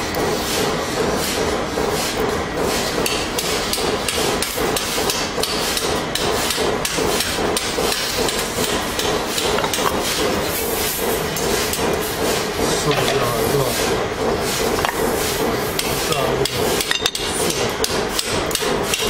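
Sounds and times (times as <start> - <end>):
hammer-like metal knocks: 16.4 - 19.0.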